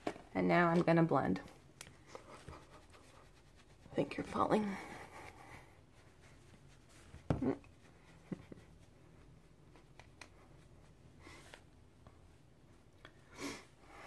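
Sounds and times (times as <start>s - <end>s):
scratchy brush strokes: 2.0s - 11.7s.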